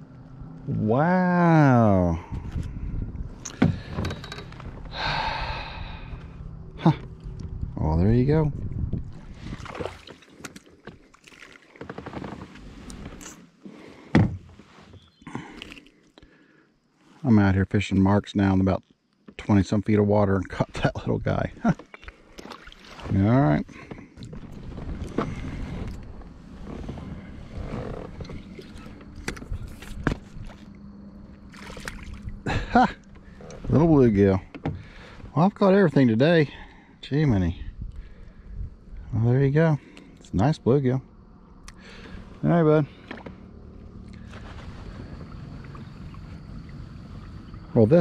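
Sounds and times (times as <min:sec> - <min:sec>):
wind buffeting microphone: 0:02.2 - 0:03.9, 0:05.3 - 0:09.8, 0:37.6 - 0:39.1.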